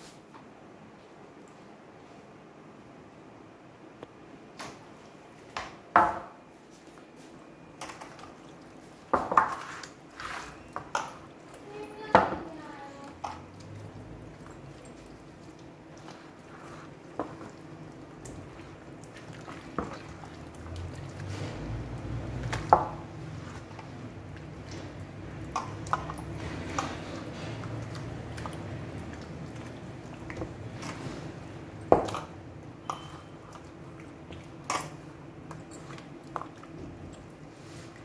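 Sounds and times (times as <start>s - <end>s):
hands squelching wet marinade: 7.7s - 38.0s.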